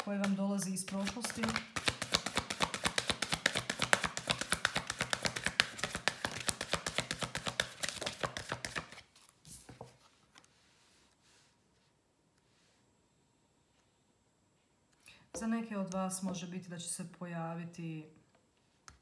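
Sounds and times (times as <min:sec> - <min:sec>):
soft card rustles: 0:00.0 - 0:02.7, 0:03.5 - 0:11.2
cards being shuffled: 0:00.0 - 0:10.5.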